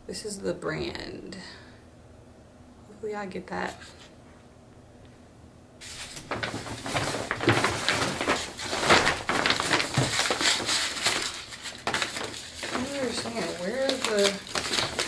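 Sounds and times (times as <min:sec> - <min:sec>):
paper packaging rustling: 0:05.8 - 0:15.0.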